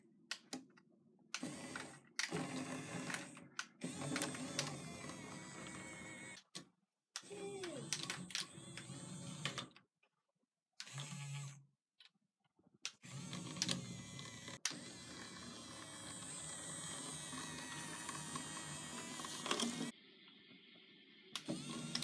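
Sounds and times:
small electric motors whirring: 1.4 - 6.4, 7.2 - 9.6, 10.8 - 11.6, 12.9 - 20.0, 21.4 - 22.0.

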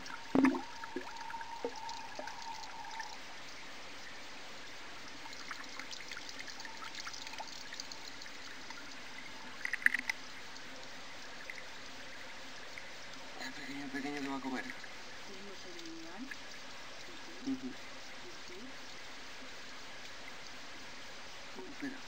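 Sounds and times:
water pouring into pond: 0.0 - 3.4, 4.4 - 17.8.

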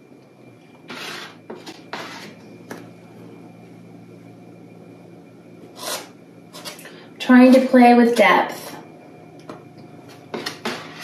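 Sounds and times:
faint steady low hum: 0.0 - 11.0
palette knife scraping paint: 0.9 - 2.4, 5.8 - 6.8, 10.3 - 11.0.

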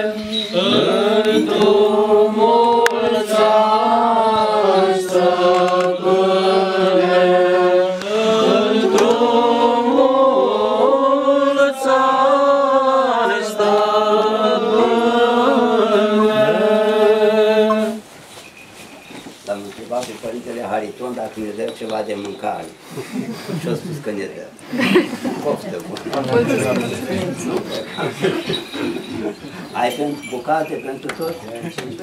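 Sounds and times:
voices singing a chant: 0.0 - 18.1.

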